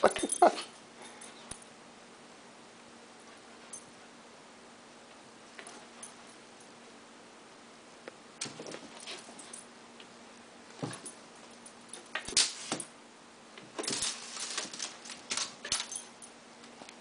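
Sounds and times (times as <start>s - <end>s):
animals scuffling and thumping: 8.4s - 9.6s, 13.6s - 15.9s
rustles: 13.6s - 17.0s.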